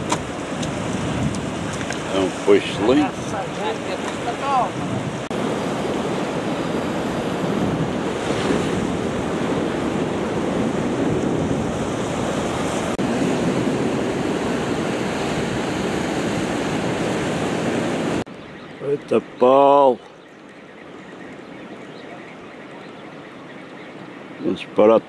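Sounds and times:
wind on microphone: 0.0s - 18.5s
sea surf on rocky shore: 0.0s - 25.0s.

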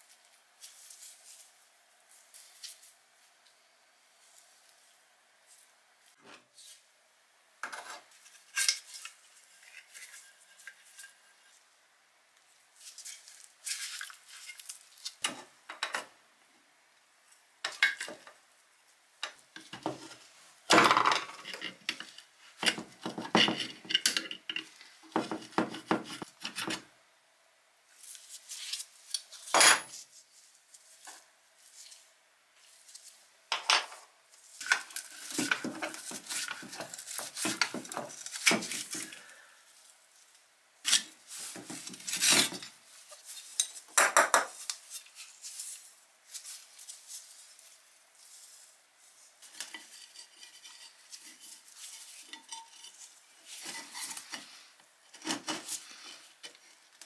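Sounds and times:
metallic clinks and scrapes: 49.4s - 56.3s.

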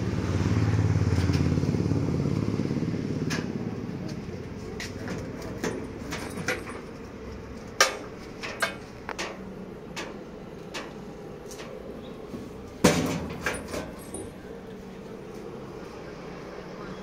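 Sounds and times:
metal door clacking shut: 12.8s - 14.4s.

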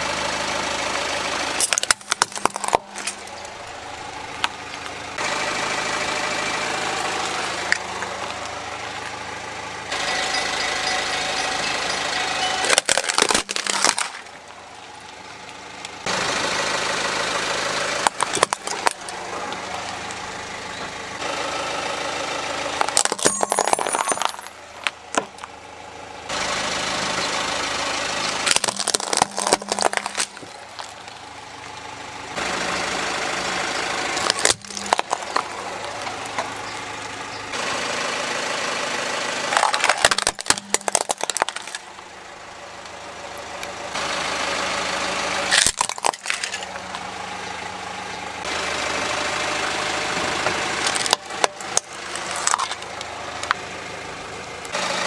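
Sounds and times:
car engine idling: 0.0s - 55.0s
toys cracking under car tyre: 1.6s - 3.6s, 12.6s - 16.0s, 17.9s - 20.2s, 22.7s - 25.6s, 28.4s - 31.8s, 34.2s - 36.6s, 39.5s - 42.1s, 45.5s - 47.0s, 50.8s - 53.6s.

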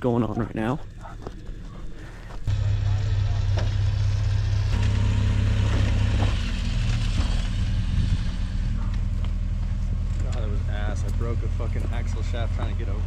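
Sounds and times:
vehicle engine idling: 0.9s - 13.0s.

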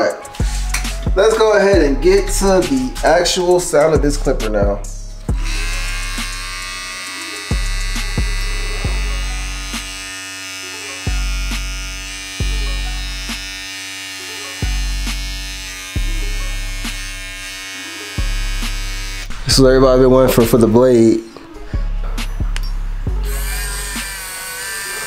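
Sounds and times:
background music with deep bass: 0.0s - 25.0s
electric clipper buzzing: 5.2s - 19.4s, 23.1s - 25.0s.

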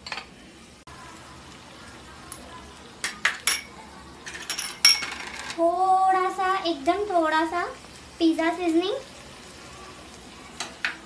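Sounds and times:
metal kitchenware clinking: 3.1s - 5.6s.

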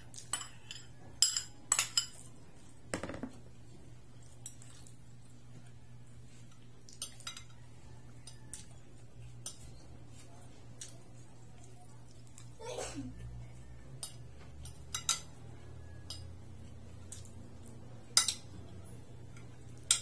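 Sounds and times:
metal spoon clinking on bowl: 0.2s - 2.3s, 14.0s - 16.4s, 18.1s - 18.6s, 19.8s - 20.0s
cutlery clicking on plate: 6.9s - 7.6s, 14.0s - 15.4s, 16.0s - 16.4s, 18.1s - 18.6s, 19.4s - 20.0s.

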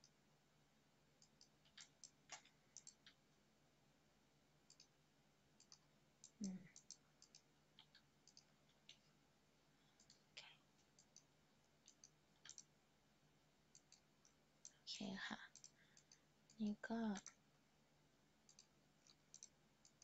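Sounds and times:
computer mouse clicks: 1.2s - 3.2s, 4.7s - 5.0s, 5.6s - 9.1s, 10.0s - 12.7s, 13.7s - 14.8s, 15.5s - 17.4s, 18.4s - 20.0s.

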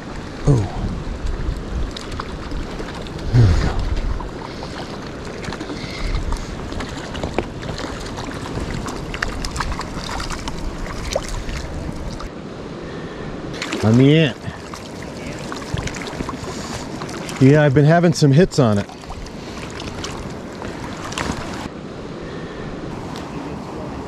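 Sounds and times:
lake water lapping: 0.0s - 12.3s, 13.5s - 21.7s
wind on microphone: 0.0s - 12.3s.

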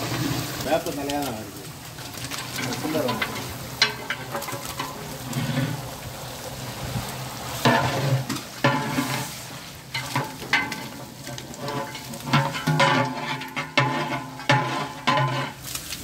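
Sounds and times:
meat sizzling in hot oil: 0.0s - 16.0s
metal ladle stirring: 2.0s - 5.9s, 7.6s - 15.7s.

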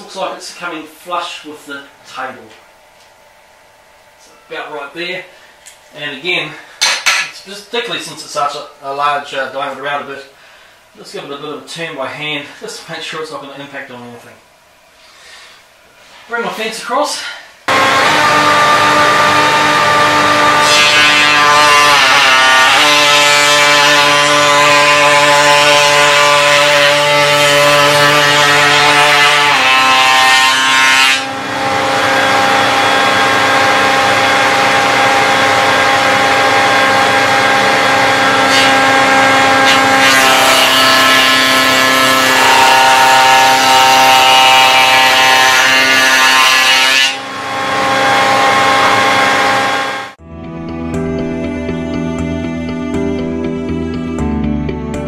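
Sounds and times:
router whining cutting wood: 17.7s - 50.2s.

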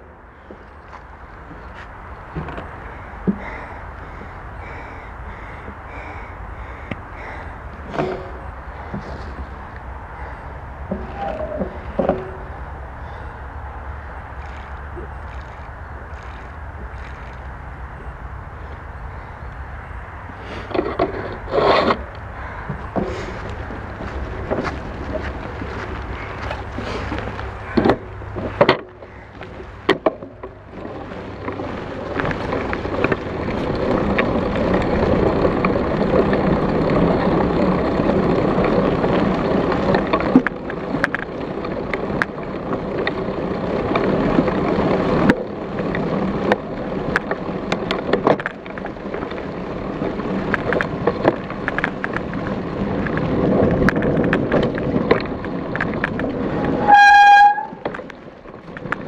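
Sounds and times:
bike knocks and rattles: 0.0s - 13.2s, 20.6s - 59.0s
bike tyres rushing through leaves: 8.2s - 20.7s, 22.3s - 29.9s, 30.6s - 39.9s.

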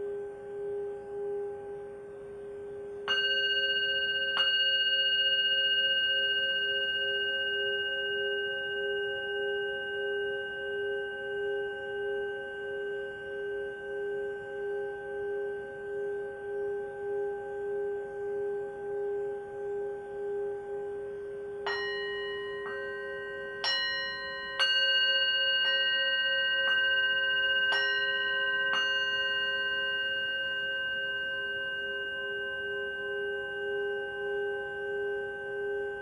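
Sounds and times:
singing bowl ringing tone: 0.0s - 36.0s
bell-like strikes: 21.7s - 32.0s.

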